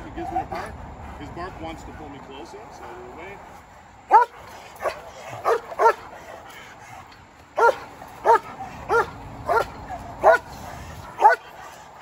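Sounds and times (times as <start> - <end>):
dog barking: 4.1 - 6.1, 7.6 - 10.5, 11.2 - 11.6.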